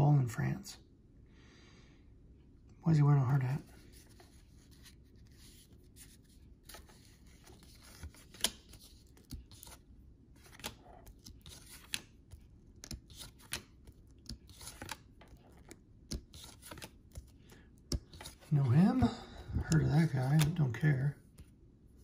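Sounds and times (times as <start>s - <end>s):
trading cards rustling: 3.5s - 21.5s
cards flicking and snapping: 6.6s - 9.8s, 10.4s - 18.5s, 19.6s - 21.5s.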